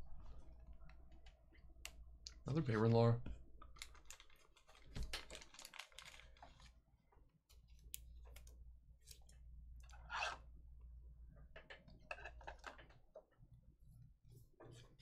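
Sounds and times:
faint clicks and taps: 7.1s - 9.9s.

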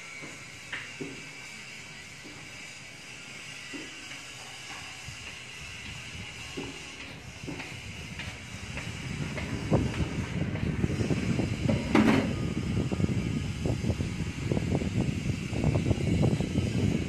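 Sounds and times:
low rumbling noise: 7.4s - 17.0s.

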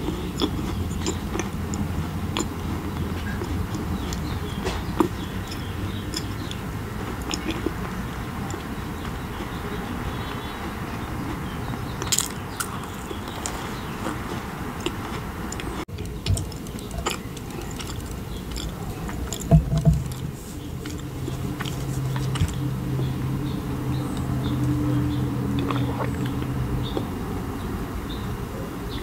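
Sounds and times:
biting and chewing crackles: 0.0s - 27.2s
bottle knocks: 19.5s - 20.1s.

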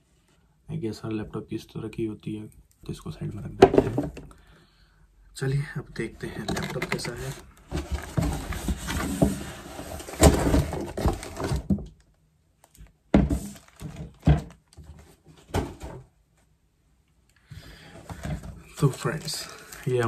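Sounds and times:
packing material rustling: 13.4s - 14.2s, 18.2s - 20.0s.

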